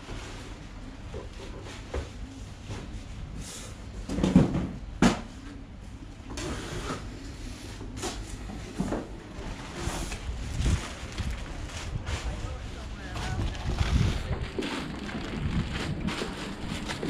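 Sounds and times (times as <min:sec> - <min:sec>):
low steady rumble: 0:07.1 - 0:17.0.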